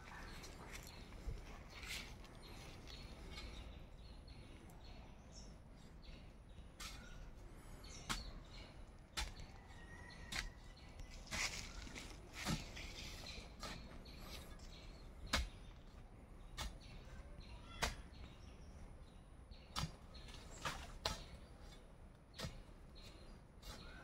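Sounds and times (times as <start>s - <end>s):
iron bar striking soil: 9.1s - 9.6s, 15.3s - 15.6s, 19.7s - 21.8s, 22.4s - 22.7s.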